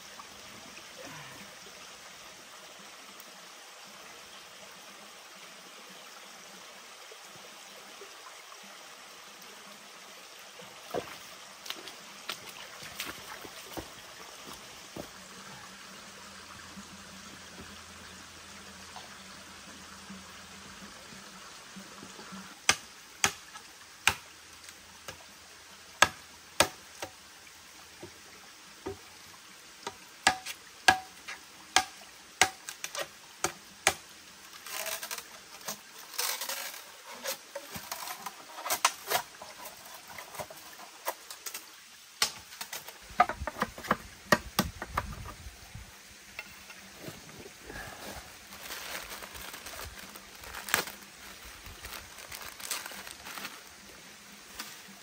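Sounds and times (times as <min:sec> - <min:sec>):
stream rushing: 0:08.2 - 0:19.6, 0:27.3 - 0:55.0.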